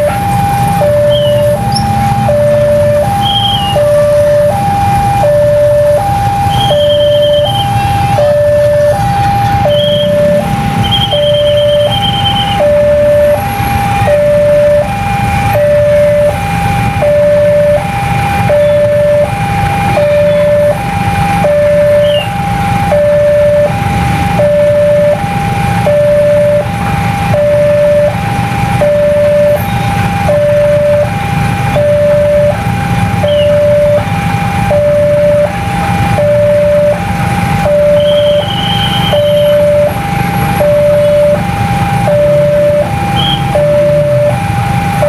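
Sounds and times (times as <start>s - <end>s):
engines rumbling: 0.0s - 45.0s
level crossing two-tone alarm: 0.0s - 45.0s
high whistle: 1.0s - 1.9s, 3.2s - 3.9s, 6.5s - 8.0s, 9.7s - 12.8s, 21.9s - 22.4s, 33.2s - 33.6s, 37.9s - 39.7s, 43.1s - 43.6s.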